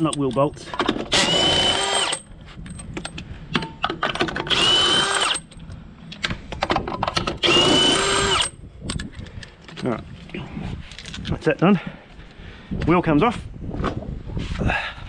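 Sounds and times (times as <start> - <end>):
socket and nuts rattling: 0.0 - 5.8
cordless drill whining: 1.1 - 2.2, 4.5 - 5.5, 7.4 - 8.6.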